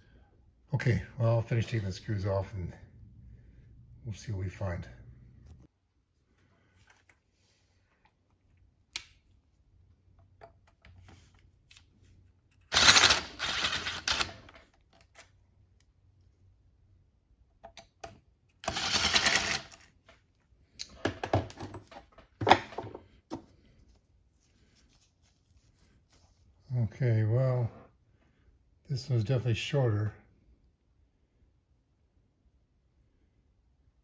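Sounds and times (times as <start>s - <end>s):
clicks and rattles of screws: 17.6s - 19.9s
power tool backing out screws: 18.6s - 19.8s.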